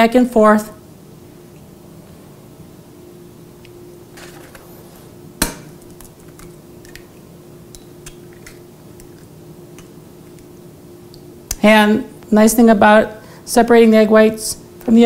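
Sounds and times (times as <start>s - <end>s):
faint steady hum: 0.0s - 15.0s
egg cracking against bowl: 5.4s - 10.5s.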